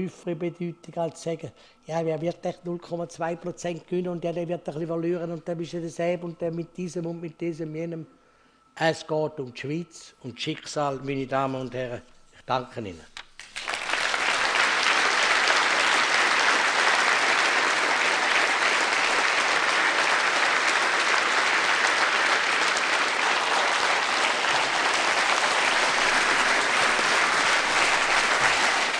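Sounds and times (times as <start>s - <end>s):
audience applauding: 13.4s - 28.9s.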